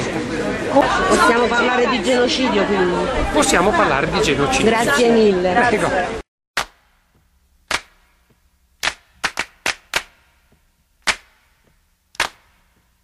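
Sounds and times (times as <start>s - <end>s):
sharp cracking clicks: 7.7s - 8.2s, 8.8s - 10.2s, 12.1s - 12.7s.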